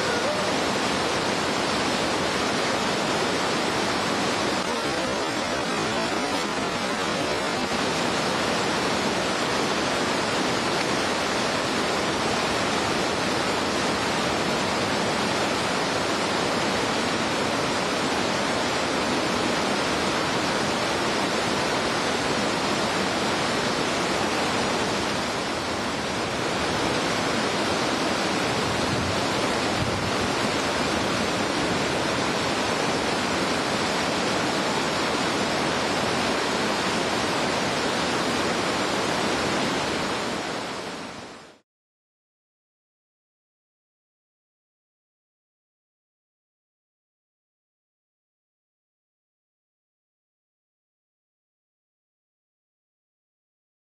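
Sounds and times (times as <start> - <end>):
rushing whitewater rapids: 0.0 - 41.6.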